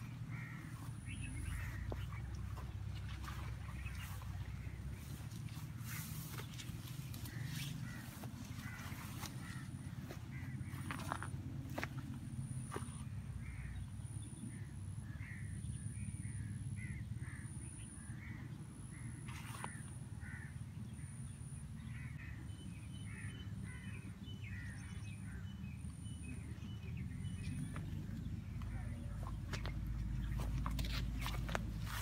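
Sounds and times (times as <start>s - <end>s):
crows cawing: 0.0s - 11.9s, 19.0s - 20.6s
steady low rumble: 0.0s - 19.2s, 23.5s - 32.0s.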